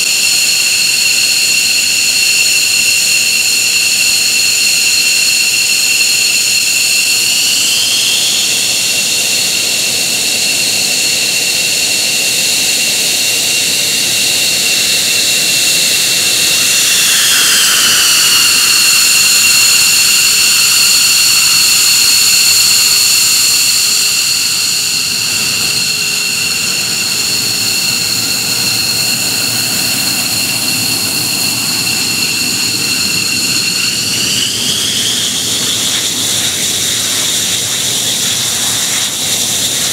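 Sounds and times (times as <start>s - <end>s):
jet engine rushing roar: 5.2s - 39.2s
jet engines whining: 5.6s - 36.9s.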